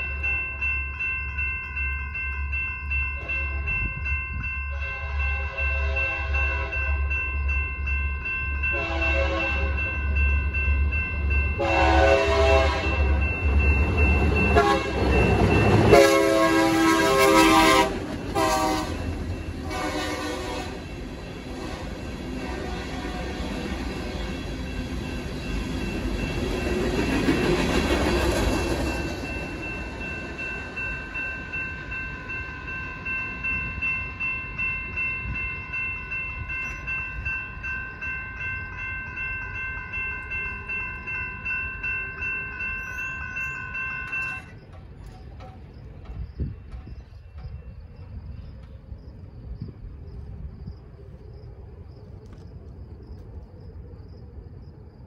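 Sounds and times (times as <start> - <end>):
crossing warning bell ringing: 0.0 - 50.4
freight train cars rumbling: 0.0 - 55.0.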